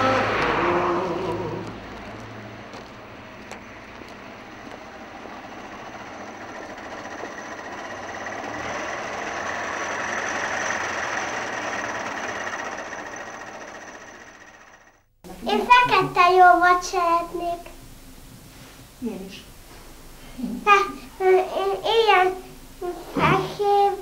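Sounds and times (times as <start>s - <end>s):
vehicle passing: 0.0s - 14.4s.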